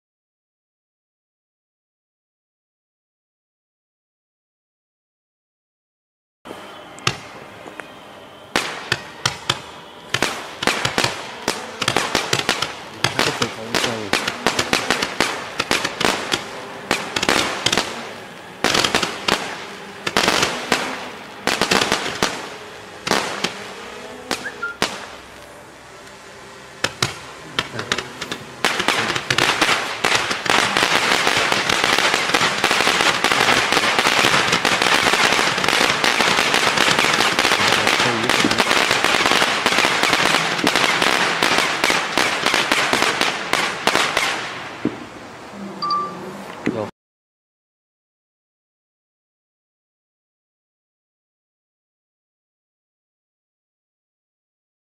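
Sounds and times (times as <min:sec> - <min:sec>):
fireworks popping and crackling: 0:08.5 - 0:25.5, 0:26.8 - 0:45.2.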